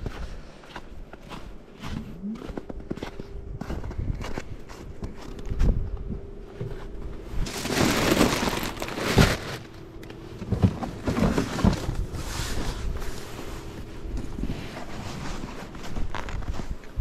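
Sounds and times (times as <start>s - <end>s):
crunching and rustling: 0.7s - 17.0s.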